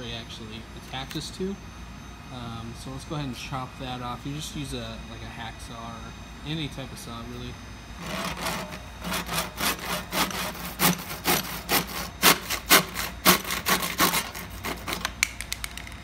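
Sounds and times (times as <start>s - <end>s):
handsaw rasping through plastic: 8.0s - 15.2s.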